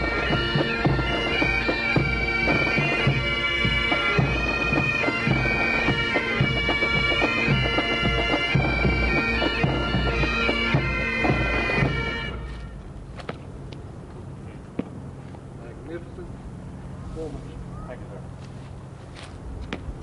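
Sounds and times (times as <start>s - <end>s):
pipe band drums: 0.0s - 12.7s
bagpipes with drone: 0.0s - 12.9s.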